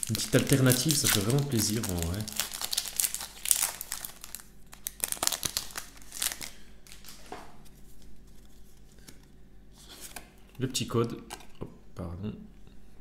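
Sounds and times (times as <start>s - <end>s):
foil wrapper crinkling and tearing: 0.0s - 7.3s.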